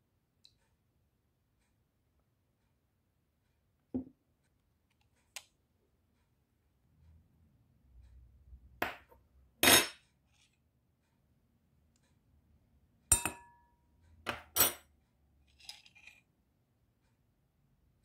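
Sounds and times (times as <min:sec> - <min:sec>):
spoon clinking against glass bowl: 0:13.1 - 0:13.6.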